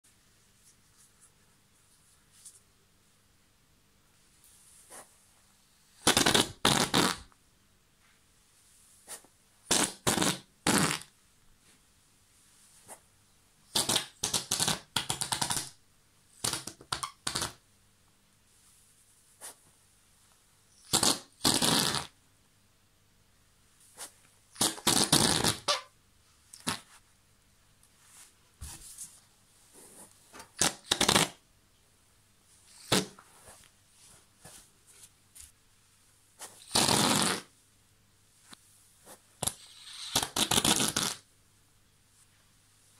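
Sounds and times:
whoopee cushion fart noises: 0:06.0 - 0:07.3, 0:09.7 - 0:11.1, 0:20.9 - 0:22.2, 0:24.6 - 0:25.9, 0:30.6 - 0:31.4, 0:32.7 - 0:33.2, 0:36.6 - 0:37.5, 0:39.4 - 0:41.2.

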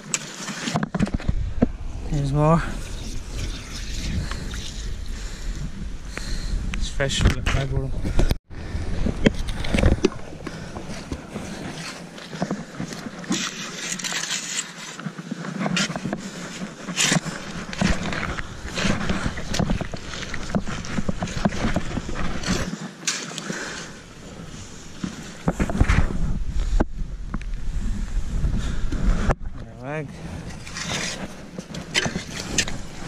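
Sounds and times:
shovel scraping through wet mud: 0:10.9 - 0:24.0, 0:30.3 - 0:33.0.

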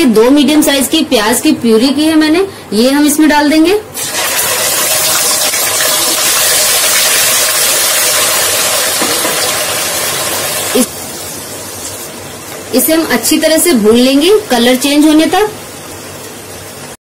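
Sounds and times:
onion puree sizzling in hot oil: 0:04.0 - 0:17.0.

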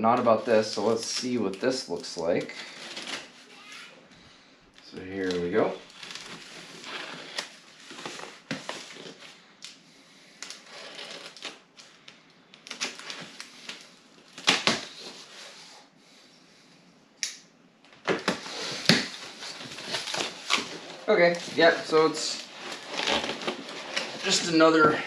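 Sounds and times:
cardboard rustling and scraping: 0:05.0 - 0:09.4, 0:18.1 - 0:25.0.

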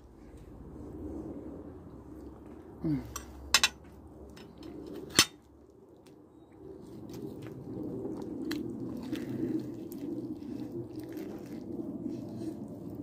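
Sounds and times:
chewing crispy chicken: 0:06.8 - 0:13.0.

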